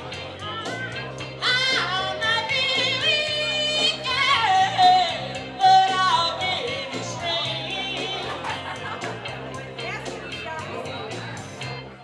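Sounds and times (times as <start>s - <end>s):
instrumental accompaniment with bass: 0.0s - 12.0s
woman singing into microphone: 0.4s - 8.6s.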